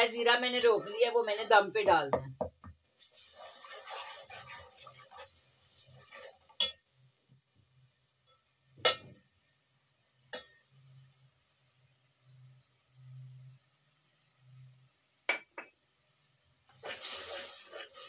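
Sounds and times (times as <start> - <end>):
spatula stirring in pot: 0.5 - 7.4, 16.7 - 18.0
spatula clinking against pot: 6.6 - 6.8.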